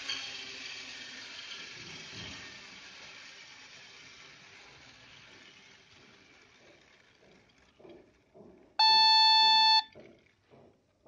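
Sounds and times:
electronic beep: 8.8s - 9.9s.

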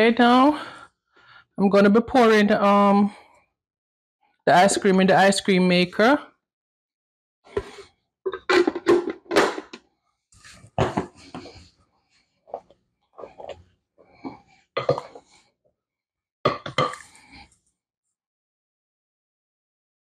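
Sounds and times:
wooden spatula scraping a bowl: 7.5s - 9.0s, 10.4s - 11.7s, 12.5s - 15.4s.

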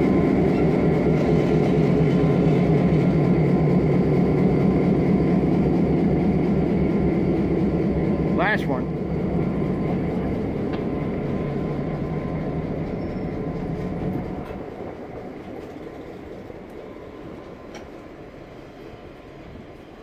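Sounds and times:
train rolling with low rumble: 0.0s - 20.0s
faint clicks from wheels and rails: 9.4s - 20.0s.

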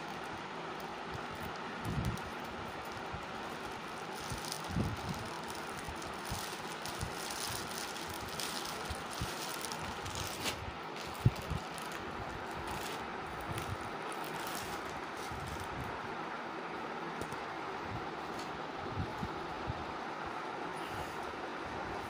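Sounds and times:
plastic packaging rustling: 0.0s - 16.0s
steady background hiss: 0.0s - 22.0s.

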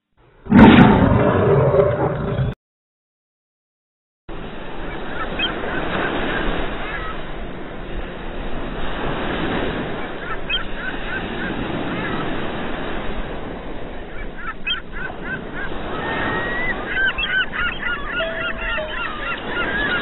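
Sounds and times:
surf washing onto beach: 4.3s - 20.0s
gull calls: 10.2s - 12.2s, 14.1s - 20.0s.

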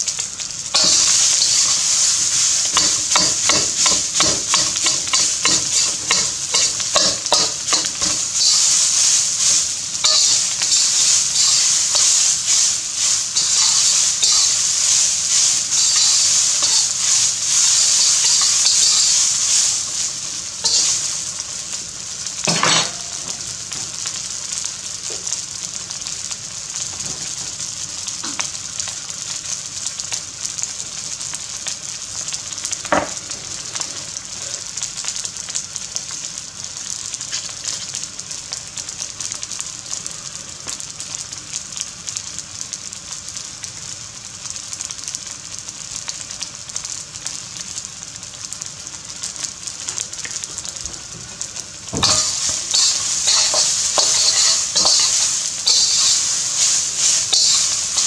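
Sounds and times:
food sizzling in a wok: 0.0s - 58.0s
spatula scraping a wok: 0.8s - 21.2s, 52.0s - 58.0s.

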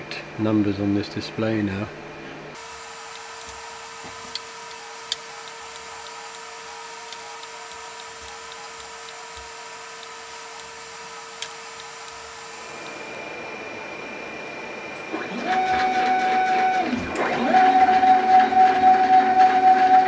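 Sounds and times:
steady electrical tone: 2.5s - 15.2s.

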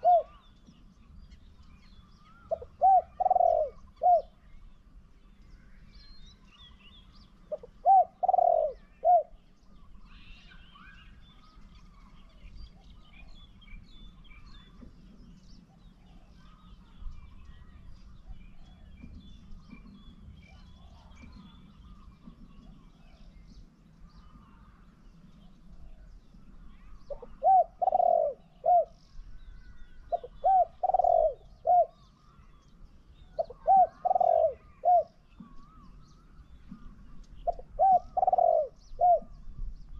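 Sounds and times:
dove cooing: 0.0s - 0.5s, 2.4s - 4.4s, 7.4s - 9.4s, 27.0s - 29.0s, 30.1s - 32.2s, 33.3s - 35.9s, 36.7s - 39.4s
small birds chirping faintly: 0.0s - 39.9s.

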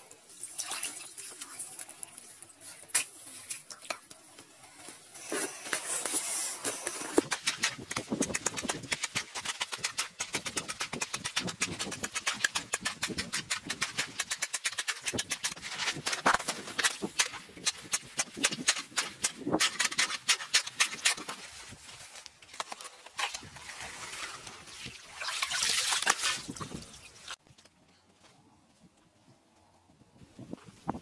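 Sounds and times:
ice and slush scraping: 5.1s - 21.9s
ice chisel chipping ice: 5.7s - 21.4s.

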